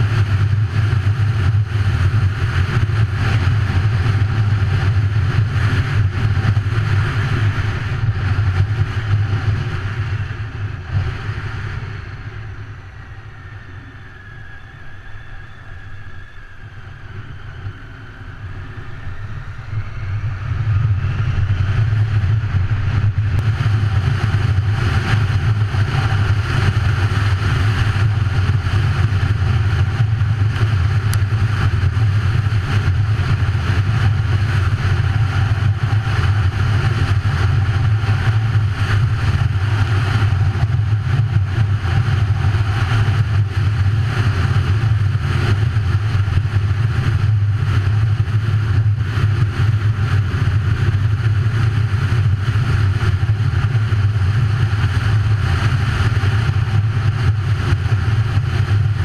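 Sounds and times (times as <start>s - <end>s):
wind noise on microphone: 0.0s - 59.0s
motorcycle engine: 17.0s - 59.0s.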